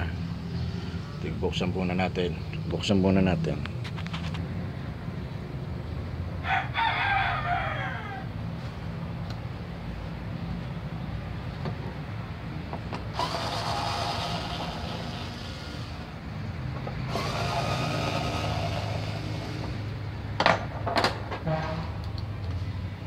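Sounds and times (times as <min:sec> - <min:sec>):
electric screwdriver whirring: 0:13.1 - 0:16.1, 0:17.1 - 0:19.8.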